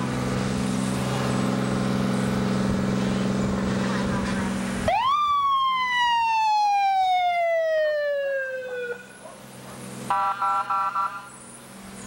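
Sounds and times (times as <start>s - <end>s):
police siren wailing: 3.8s - 9.2s, 10.1s - 11.3s.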